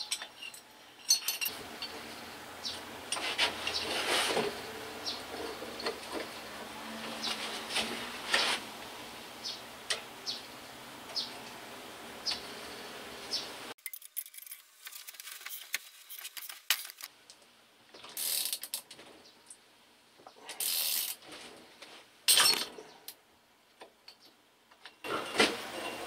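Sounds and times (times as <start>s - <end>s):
metal parts clinking and tapping: 0.0s - 2.0s, 13.8s - 17.0s
metal scraping: 0.0s - 8.8s.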